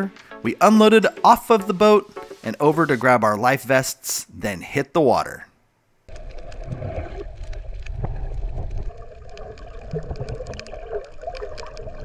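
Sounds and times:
muffled underwater water rumble: 6.1 - 12.0
sharp underwater clicks and crackles: 6.1 - 12.0.

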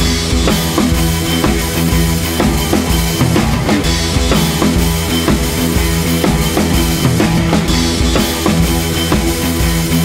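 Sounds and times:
drum beat with bass music: 0.0 - 10.0.

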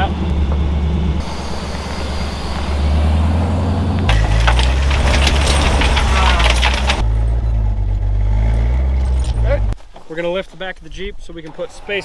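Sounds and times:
vehicle engine idling: 0.0 - 9.8
crackling and clicking: 3.9 - 7.1.

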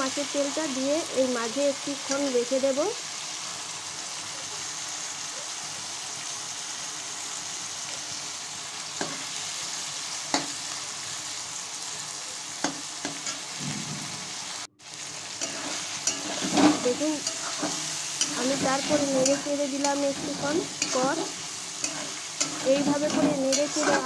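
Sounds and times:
food sizzling in oil: 0.0 - 24.0
metal spatula scraping pan: 15.4 - 24.0.

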